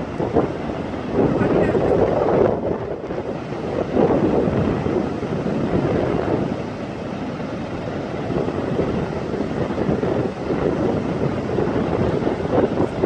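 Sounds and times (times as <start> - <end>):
ocean surf breaking on beach: 0.0 - 13.0
wind buffeting microphone: 0.0 - 13.0.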